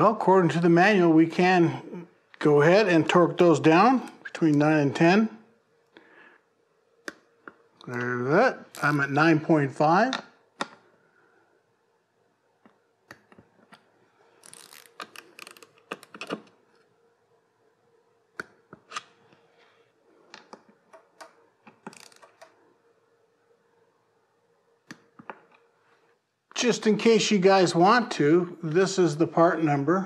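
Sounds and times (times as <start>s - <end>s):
torque wrench clicking: 21.9s - 22.5s.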